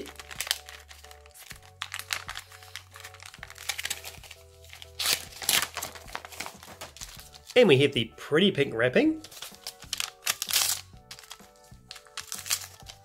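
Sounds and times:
cardboard box crinkling and clicking: 0.0 - 7.4, 9.3 - 13.0
cardboard crackle: 0.0 - 7.6, 9.2 - 13.0
light background music: 0.0 - 13.0.

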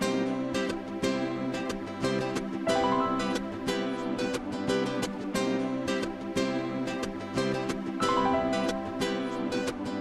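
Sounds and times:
strummed ukulele or guitar music: 0.0 - 10.0.

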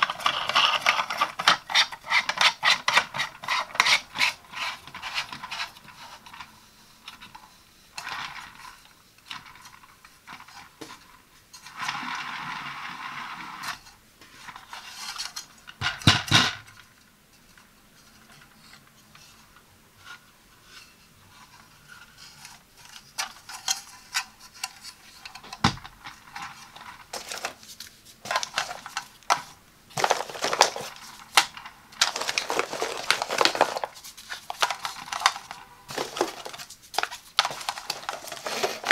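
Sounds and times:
plastic parts clicking and knocking: 0.0 - 6.5, 14.5 - 18.5, 22.4 - 38.9
plastic rubbing: 0.0 - 15.6, 17.4 - 38.9.

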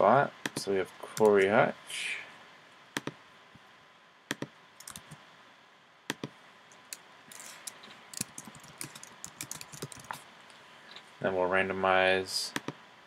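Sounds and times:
computer mouse clicks: 3.0 - 3.2, 4.3 - 5.2, 6.1 - 10.2
typing on computer keyboard: 4.3 - 5.2, 8.2 - 10.2.

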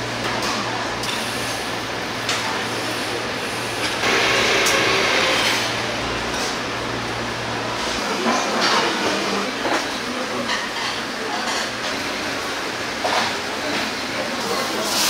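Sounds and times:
noisy wash: 1.6 - 10.4.

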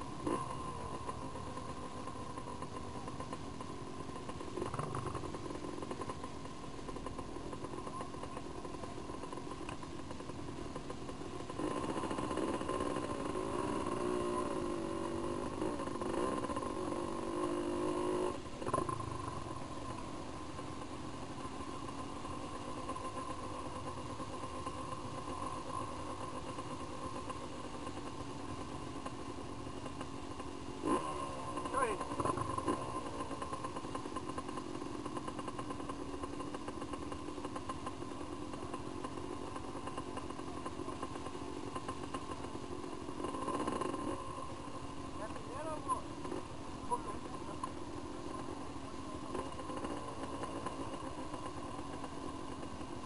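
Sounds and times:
engine revving: 0.0 - 6.2, 10.8 - 20.0, 30.7 - 53.0
dirt bike engines idling: 0.0 - 53.0.

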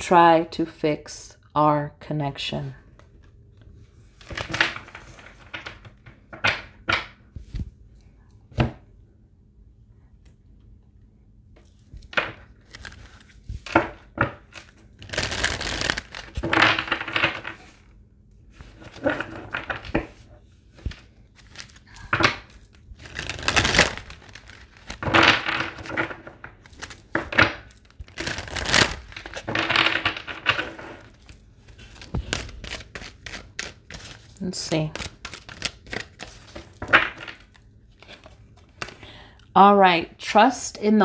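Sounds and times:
cards shuffling: 11.6 - 17.9, 18.6 - 39.0.

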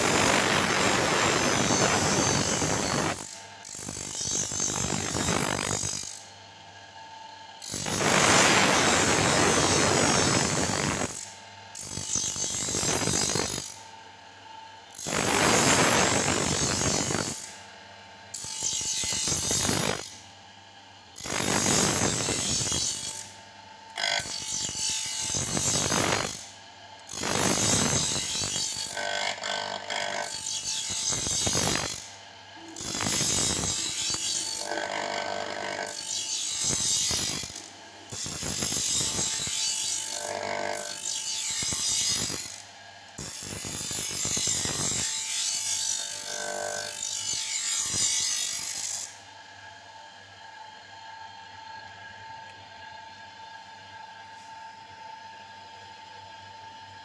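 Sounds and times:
grinding wheel on metal blade: 0.0 - 6.3, 7.6 - 13.8, 14.9 - 17.6, 18.3 - 20.2, 21.1 - 23.4, 24.0 - 26.5, 27.1 - 42.6, 43.2 - 49.2.

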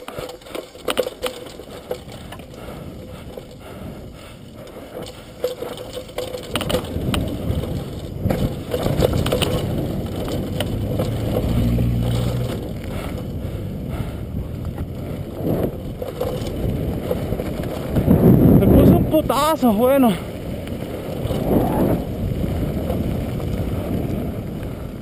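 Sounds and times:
bike rattling and clattering: 0.0 - 25.0
tyres crunching over stones: 4.7 - 13.4, 14.6 - 23.6.

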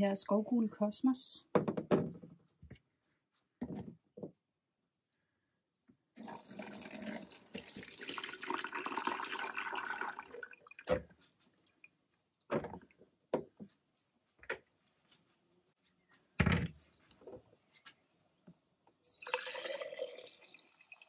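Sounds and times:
liquid pouring into a pot: 6.2 - 10.9, 19.1 - 21.0.

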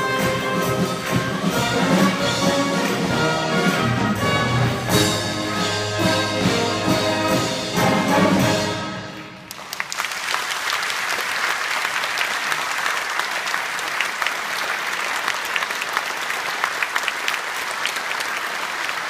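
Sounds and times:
wind band playing: 0.0 - 9.6
audience applauding: 9.3 - 19.0.

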